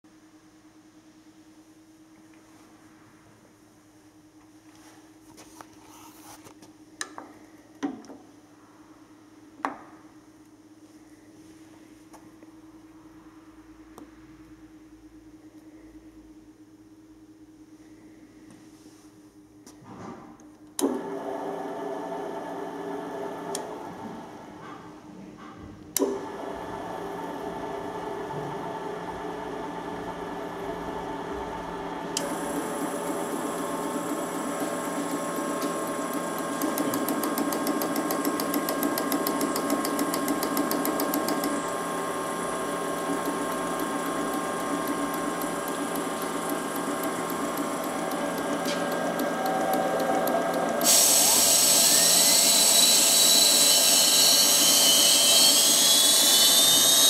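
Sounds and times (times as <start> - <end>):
grinding machine motor hum: 26.0 - 57.0
high-pitched machine whine: 26.4 - 57.0.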